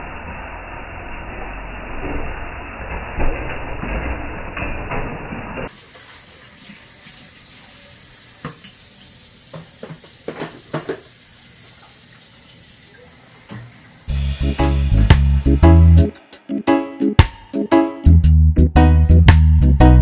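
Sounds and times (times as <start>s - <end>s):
faucet running into a sink: 5.7s - 14.1s.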